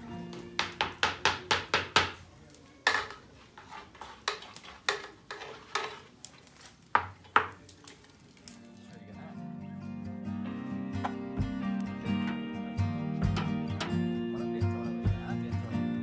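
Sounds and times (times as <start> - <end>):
metal utensil scraping metal pot: 2.8 - 6.6.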